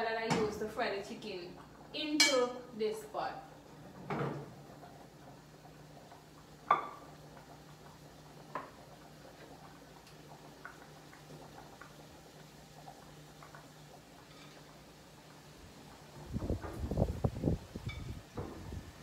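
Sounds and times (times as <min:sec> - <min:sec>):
pots and utensils knocking: 0:02.2 - 0:02.5, 0:06.7 - 0:07.0.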